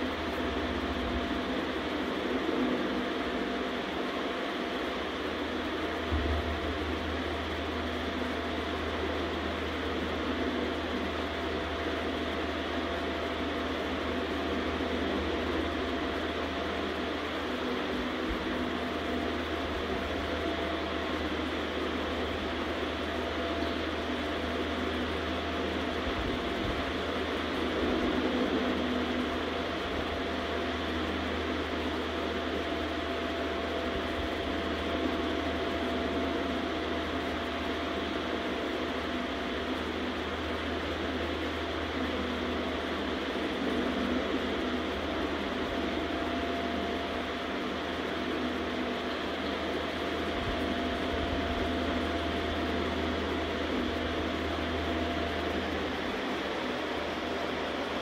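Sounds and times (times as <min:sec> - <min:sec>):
low hum: 0:00.0 - 0:30.2
faint constant whine: 0:00.0 - 0:58.0
faint low rumbles: 0:06.1 - 0:08.4.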